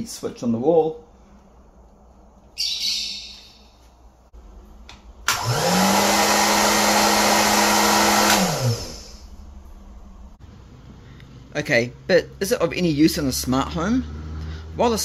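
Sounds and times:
hair dryer running: 5.2s - 9.5s.

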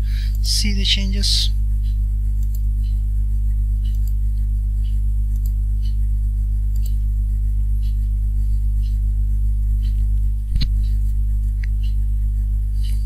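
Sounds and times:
low electrical hum: 0.0s - 13.0s
faint high ticks: 1.8s - 3.0s.

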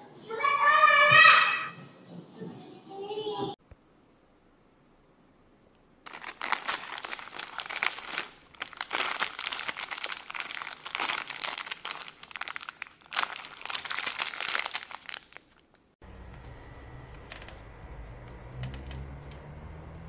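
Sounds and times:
plastic bag of screws crinkling: 6.0s - 15.8s.

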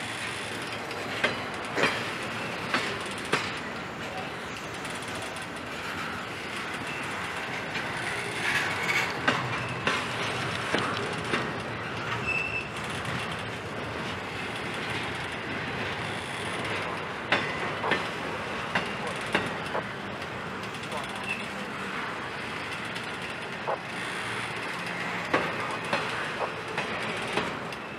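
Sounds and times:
train wheels rumbling on rails: 0.0s - 27.9s
clicks and clanks: 0.6s - 5.6s, 7.6s - 21.6s
wheel squeal: 5.7s - 10.0s, 11.8s - 13.3s, 20.9s - 21.6s.

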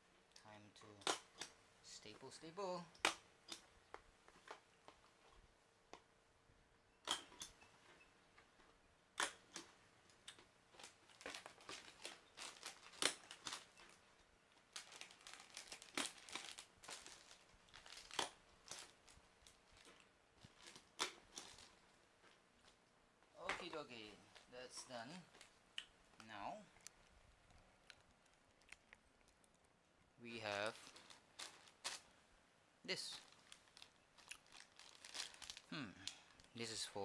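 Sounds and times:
plastic bags crinkling: 10.3s - 22.8s, 30.3s - 32.2s, 32.9s - 36.9s.

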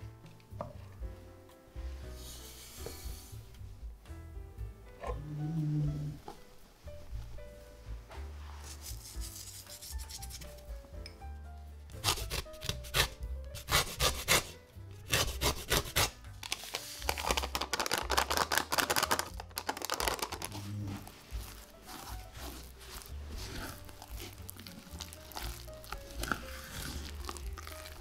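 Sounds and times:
quiet background music: 0.0s - 28.0s
sugar shaken from paper sachet: 8.6s - 10.6s, 15.8s - 23.2s.

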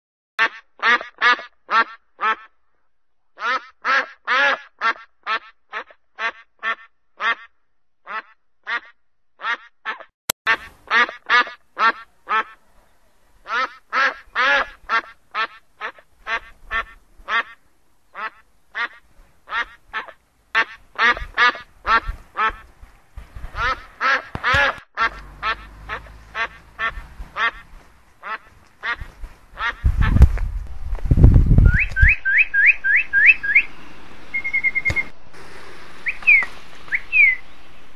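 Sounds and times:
duck quacking: 0.4s - 2.6s, 3.4s - 12.8s, 13.4s - 22.7s, 23.5s - 30.2s
short rising chirps: 31.8s - 35.2s.

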